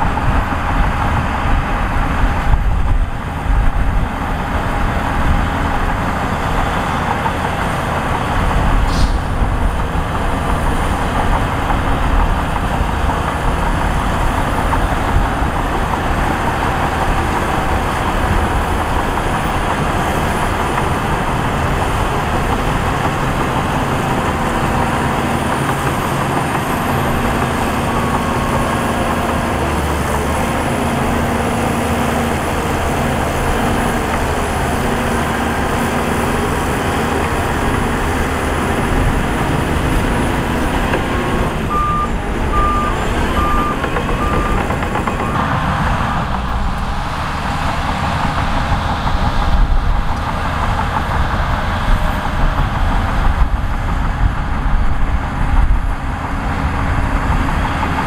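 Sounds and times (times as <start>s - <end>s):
heavy diesel machinery running: 0.0s - 58.0s
reversing alarm beeping: 41.6s - 45.5s.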